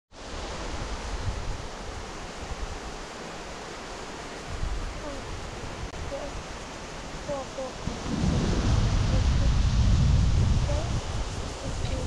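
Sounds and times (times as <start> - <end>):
river water rushing: 0.2 - 12.0
low uneven rumble: 7.2 - 12.0.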